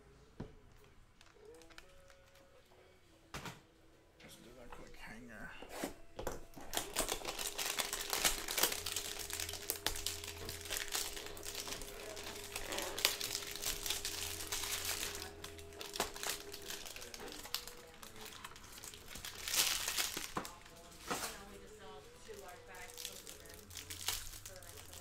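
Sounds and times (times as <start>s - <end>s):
plastic shrink-wrap crinkling: 1.2s - 2.6s, 6.5s - 25.0s.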